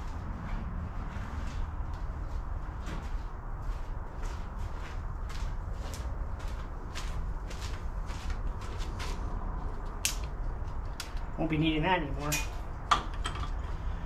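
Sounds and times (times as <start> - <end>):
footsteps: 0.0 - 11.2
steady low rumble: 0.0 - 14.0.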